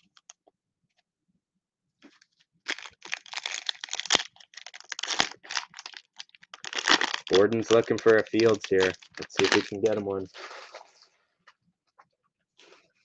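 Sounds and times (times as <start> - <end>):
cellophane wrapper crinkling: 2.0 - 10.0.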